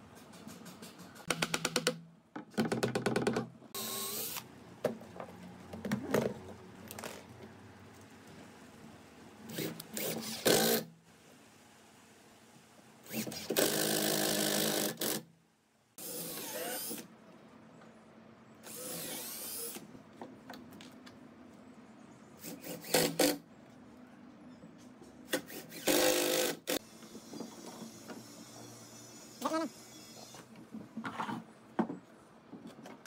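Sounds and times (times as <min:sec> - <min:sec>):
drill driving screws into wood: 0:03.8 - 0:04.5, 0:09.5 - 0:10.9, 0:13.0 - 0:15.3, 0:16.0 - 0:17.1, 0:18.6 - 0:19.8, 0:22.4 - 0:23.4, 0:25.3 - 0:30.5.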